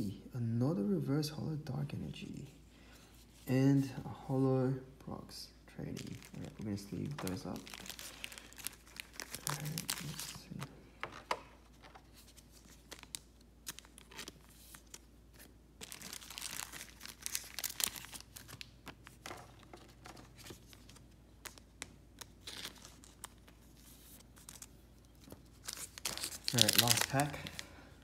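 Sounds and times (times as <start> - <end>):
plastic card sleeves rustling: 5.8 - 27.8.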